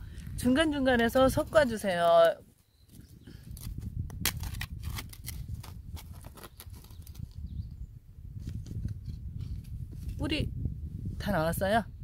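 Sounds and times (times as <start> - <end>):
hands digging in stony soil: 0.4 - 7.4.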